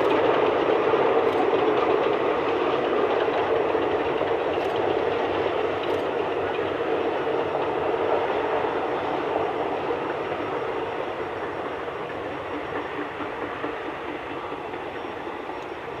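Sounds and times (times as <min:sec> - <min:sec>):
distant train rumbling on rails: 0:00.0 - 0:16.0.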